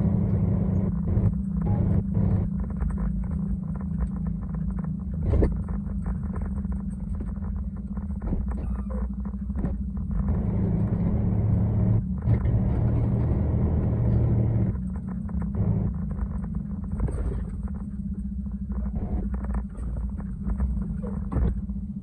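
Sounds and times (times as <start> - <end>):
truck diesel engine rumbling: 0.0 - 2.5, 8.7 - 22.0.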